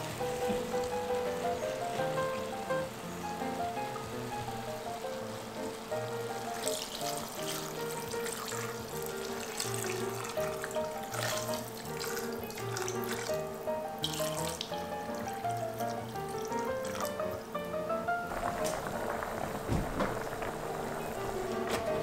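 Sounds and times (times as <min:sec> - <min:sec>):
background music: 0:00.0 - 0:22.0
water pouring into a pot: 0:06.0 - 0:17.5, 0:18.3 - 0:22.0.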